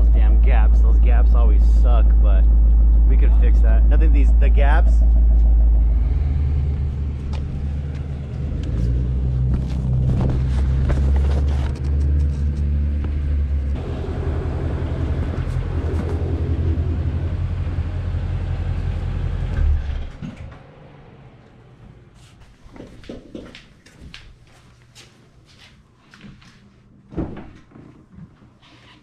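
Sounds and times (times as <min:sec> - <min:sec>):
car engine idling: 0:00.0 - 0:22.2.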